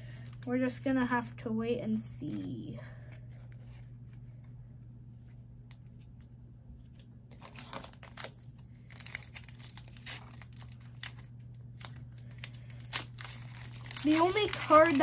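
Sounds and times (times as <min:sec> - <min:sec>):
foil wrapper crinkling and tearing: 0:07.3 - 0:15.0.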